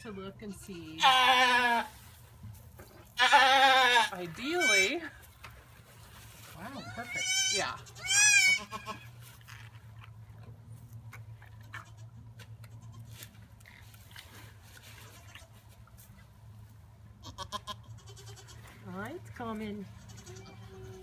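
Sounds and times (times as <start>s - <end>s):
goat bleating: 0.5s - 1.9s, 3.2s - 5.0s, 6.7s - 9.2s, 11.6s - 13.1s, 17.2s - 18.7s, 19.9s - 21.0s
straw rustling: 4.1s - 7.9s, 13.0s - 16.9s.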